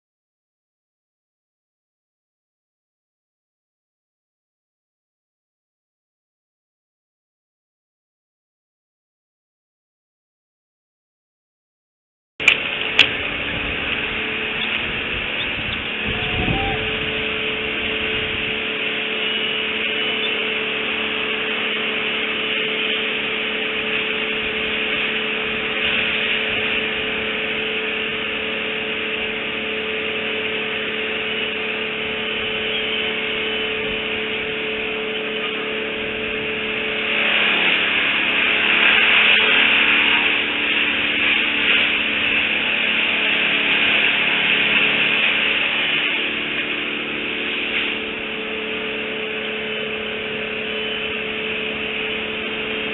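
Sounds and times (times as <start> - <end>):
mechanical drone with hiss: 12.4 - 52.9.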